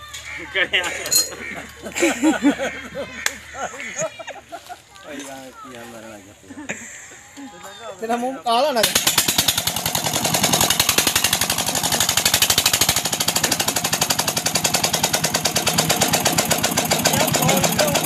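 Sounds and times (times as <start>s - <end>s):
diesel engine chugging: 8.6s - 18.0s.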